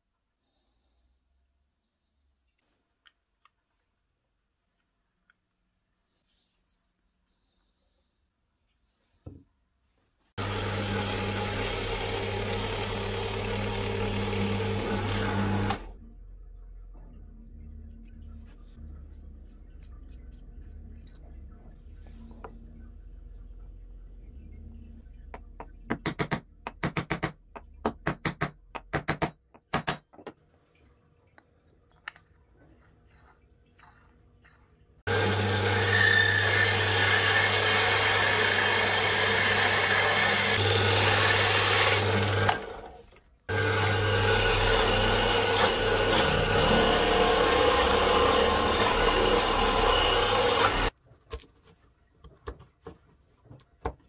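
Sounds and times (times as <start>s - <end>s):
drill press boring into plywood: 10.4s - 15.9s, 43.5s - 50.9s
taps and clicks of hand work: 25.3s - 30.4s.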